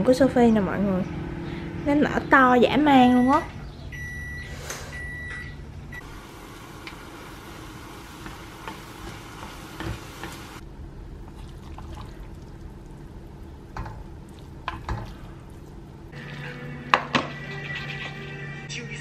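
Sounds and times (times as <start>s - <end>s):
noodles sizzling in a saucepan: 6.0s - 10.6s.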